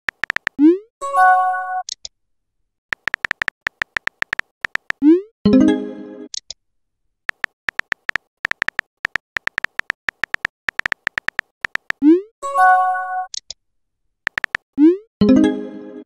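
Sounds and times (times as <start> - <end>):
keyboard tap clicks: 0.1 - 0.6, 2.9 - 5.0, 7.3 - 12.0, 14.3 - 14.7.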